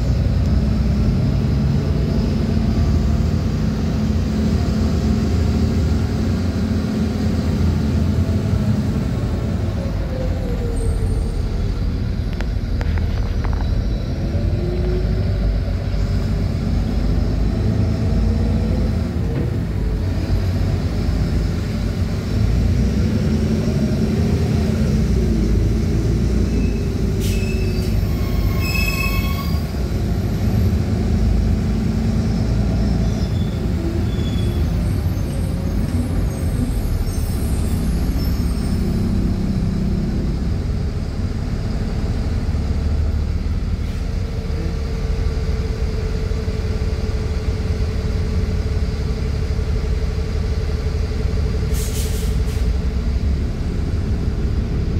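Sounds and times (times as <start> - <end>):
bus engine and road noise: 0.0 - 54.9
high squeal: 26.4 - 30.7, 32.6 - 39.3.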